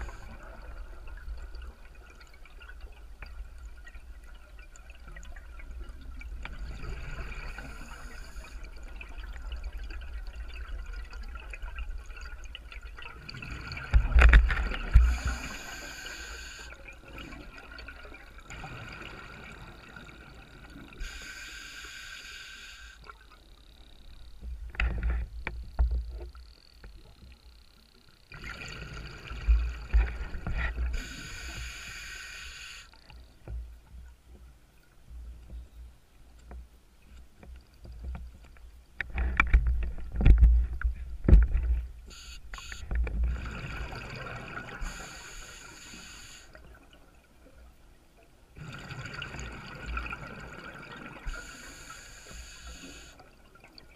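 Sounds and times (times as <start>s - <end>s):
exhaled air bubbles underwater: 0.0s - 21.2s, 28.3s - 31.6s, 42.6s - 45.3s, 48.6s - 52.0s
low water rumble: 0.0s - 21.3s, 23.0s - 31.9s, 32.9s - 45.6s.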